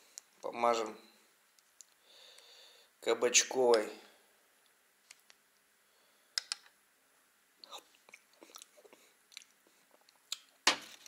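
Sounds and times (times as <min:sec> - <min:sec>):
close-up chewing: 0:08.0 - 0:10.5.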